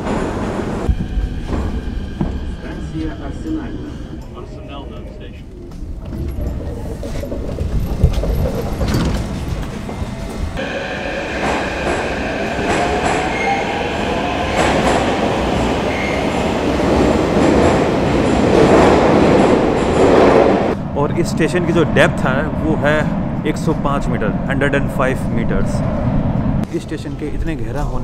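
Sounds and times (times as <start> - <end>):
train rumble with wheel clicks: 0.0 - 20.8
high squealing wheels: 6.1 - 17.2.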